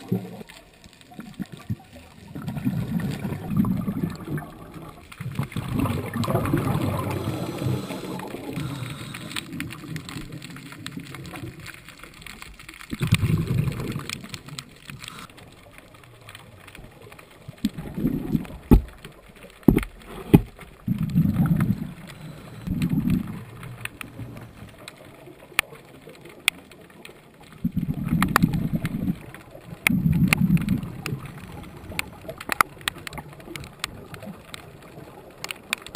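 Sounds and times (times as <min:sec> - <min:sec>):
underwater exhaled bubbles: 0:00.0 - 0:35.9
sharp clicks: 0:31.9 - 0:34.7.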